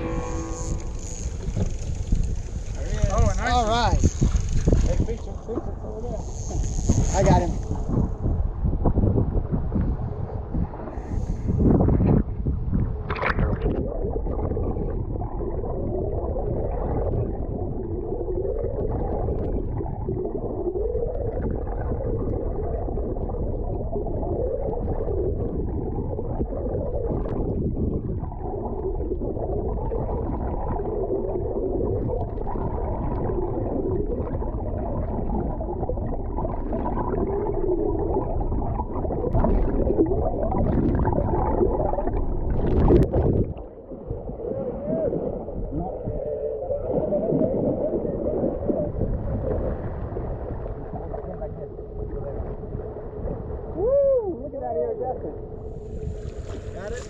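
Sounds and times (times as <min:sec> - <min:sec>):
wavering drone: 0:00.0 - 0:08.2
underwater rumble of moving water: 0:00.0 - 0:57.0.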